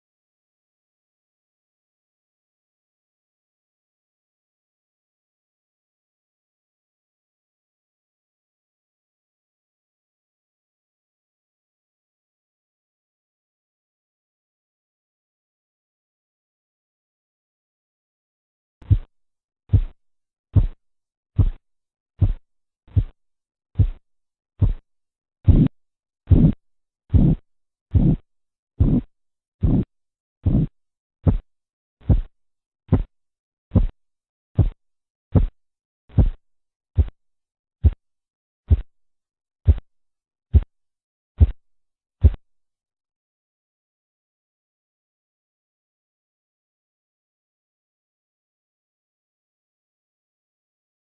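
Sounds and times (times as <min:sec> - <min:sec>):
soft heartbeat thuds through stethoscope: 0:18.8 - 0:19.1, 0:19.7 - 0:20.0, 0:20.6 - 0:20.8, 0:21.4 - 0:21.6, 0:22.2 - 0:23.2, 0:23.8 - 0:24.0, 0:24.6 - 0:28.2, 0:28.8 - 0:32.3, 0:32.9 - 0:33.1, 0:33.7 - 0:34.0, 0:34.6 - 0:36.4, 0:37.0 - 0:37.2, 0:37.8 - 0:38.0, 0:38.7 - 0:38.9, 0:39.6 - 0:39.9, 0:40.5 - 0:40.7, 0:41.4 - 0:41.6, 0:42.2 - 0:42.4.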